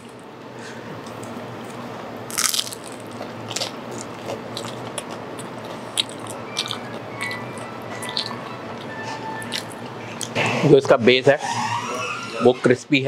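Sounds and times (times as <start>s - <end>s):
pizza crust crunching: 2.3s - 7.4s
chewing with soft crunches: 2.4s - 8.5s.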